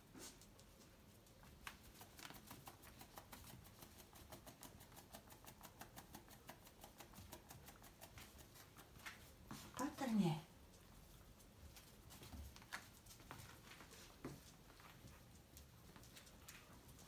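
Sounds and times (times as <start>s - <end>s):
dogs licking with rapid clicks: 0.4s - 17.0s.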